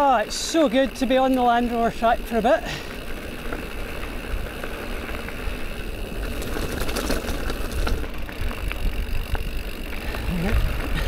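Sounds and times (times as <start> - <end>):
bike tyres rumbling on gravel: 0.0 - 11.0
wind buffeting microphone: 3.8 - 11.0
chain and frame rattling: 5.7 - 11.0.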